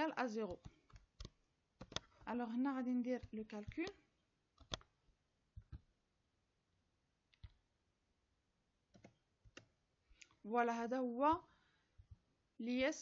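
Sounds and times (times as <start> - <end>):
mouse and keyboard clicks: 0.4 - 2.3, 4.6 - 4.9.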